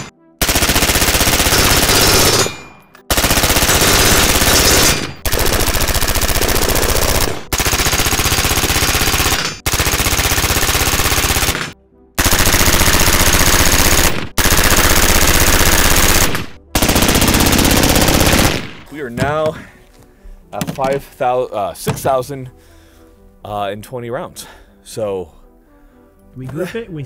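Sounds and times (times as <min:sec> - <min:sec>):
rapid rifle gunfire: 0:00.0 - 0:18.9.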